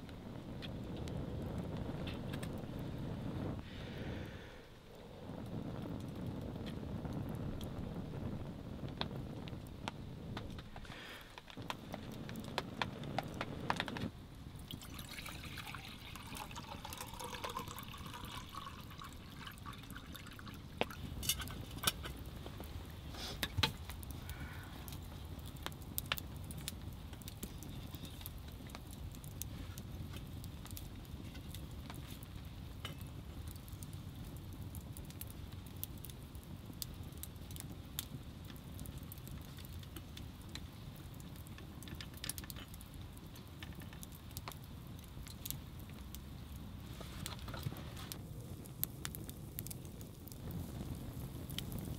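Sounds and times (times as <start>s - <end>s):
fire popping: 0.0s - 51.9s
wood fire crackling: 0.0s - 51.9s
man blowing on kindling: 2.6s - 9.5s, 23.0s - 24.9s.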